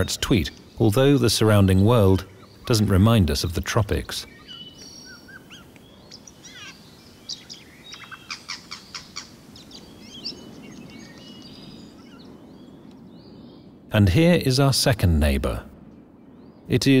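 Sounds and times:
jays chirping and whistling: 4.2 - 12.4
sharp clicking bird notes: 4.7 - 5.0, 5.6 - 6.4, 10.7 - 11.8.

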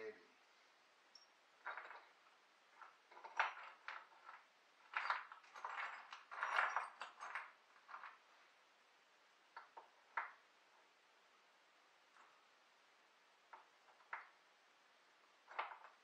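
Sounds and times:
metal parts clinking: 1.6 - 2.2, 2.8 - 8.2.

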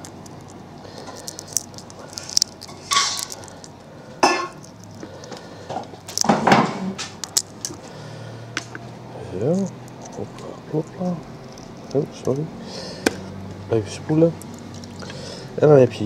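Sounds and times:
clinks and knocks: 0.0 - 7.8
crayfish shell cracking: 0.0 - 8.0, 9.5 - 13.2, 14.4 - 15.2.

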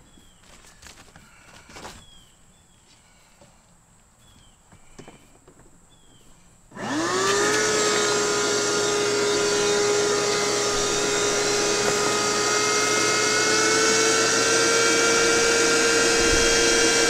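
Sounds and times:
vacuum cleaner motor whine: 6.7 - 17.0.

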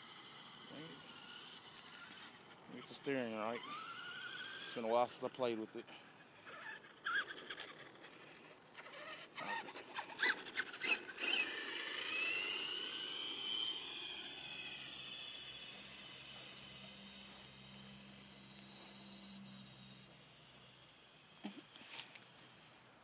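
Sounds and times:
toy truck motor whining: 0.0 - 22.3.

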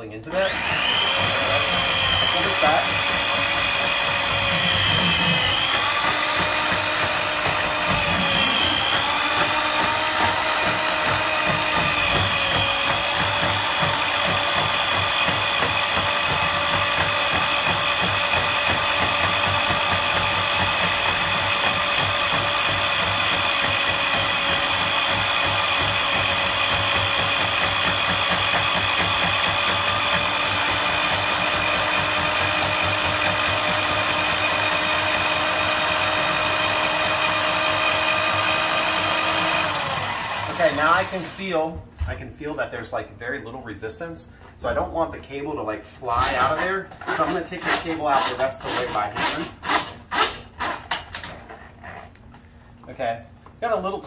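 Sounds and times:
drain snake motor whining: 0.5 - 14.9.

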